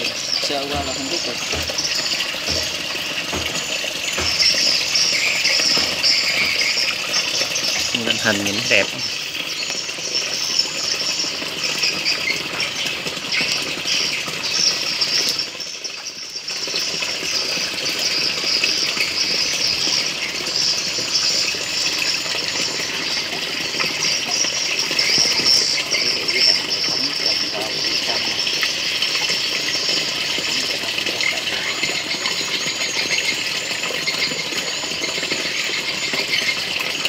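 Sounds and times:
water rushing through pipe: 0.0 - 37.0.

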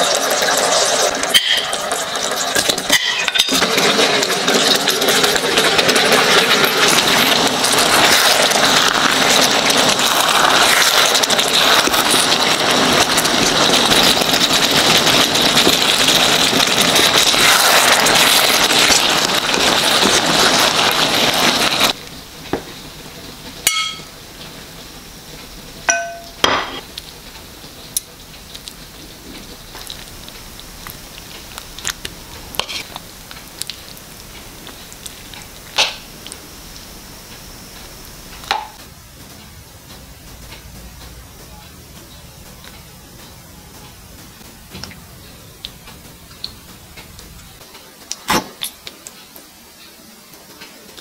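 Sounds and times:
spatula stirring in a wok: 0.0 - 22.0, 28.2 - 41.2
food sizzling in a wok: 0.0 - 51.0.

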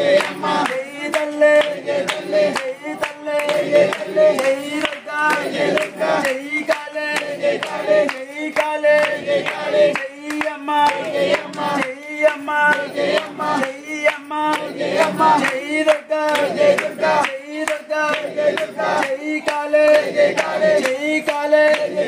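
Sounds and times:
group singing devotional song: 0.0 - 22.0.

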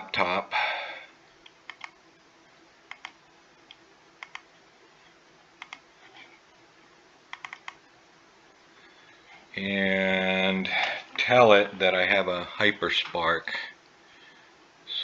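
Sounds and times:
faint steady hum: 0.0 - 15.0
laptop keys clicking: 1.7 - 2.0, 2.9 - 3.2, 4.2 - 4.5, 5.6 - 5.8, 7.3 - 7.8.

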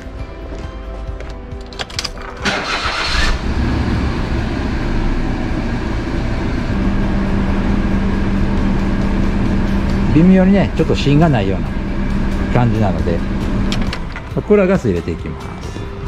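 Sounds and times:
car engine cranking and idling: 1.3 - 15.4
ignition key clicks: 1.6 - 3.2
steady low hum: 4.2 - 13.8.

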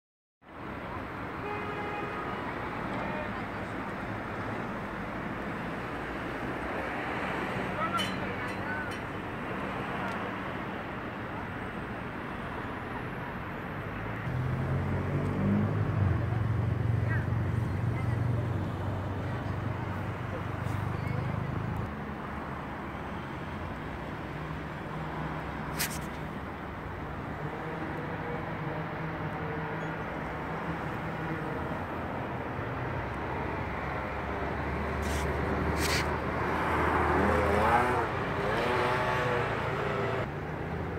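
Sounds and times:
short hissing noises: 25.7 - 26.2, 35.0 - 36.2.

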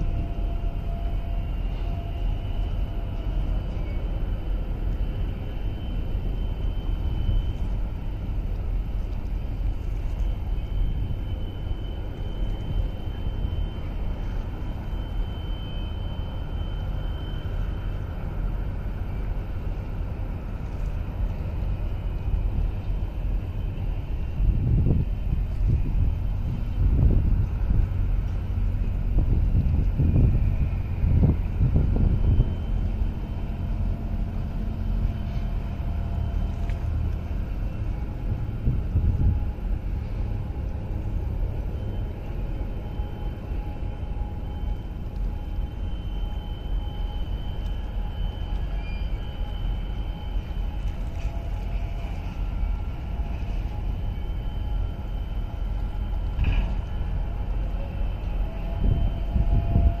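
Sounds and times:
faint machine whines: 0.0 - 60.0
low engine rumble: 0.0 - 60.0
wind gusts on microphone: 22.2 - 36.1, 36.8 - 41.4, 56.3 - 60.0.

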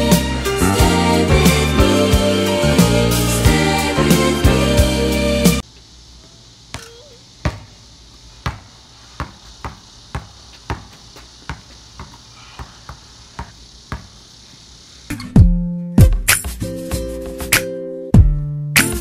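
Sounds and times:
faint steady hiss: 5.1 - 15.3
basketball bouncing: 6.7 - 7.8, 8.4 - 14.2.

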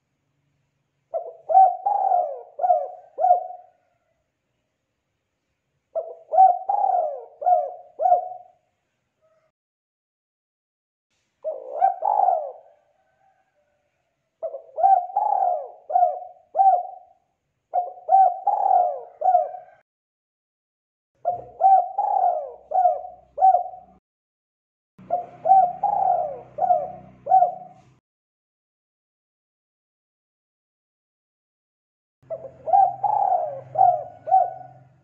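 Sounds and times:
dove cooing: 1.1 - 4.0, 6.0 - 8.6, 11.4 - 13.7, 14.4 - 19.8, 21.2 - 24.0, 25.0 - 28.0, 32.2 - 35.0.

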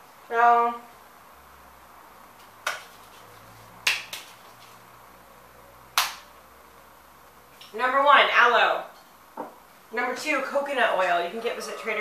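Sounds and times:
short sharp snaps: 2.4 - 2.9, 3.8 - 4.3, 6.0 - 6.3.

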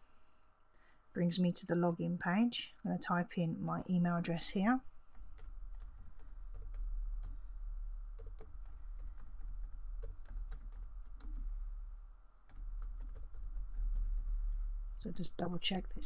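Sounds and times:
steady low hum: 0.0 - 16.0
keyboard typing clicks: 8.1 - 11.5, 12.5 - 14.3.

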